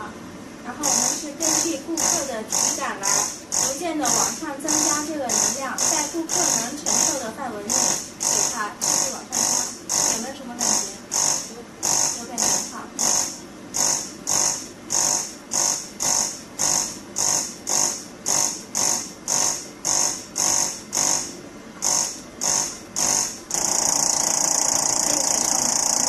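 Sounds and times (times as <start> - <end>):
stimulation chair buzzing: 0.0 - 26.0.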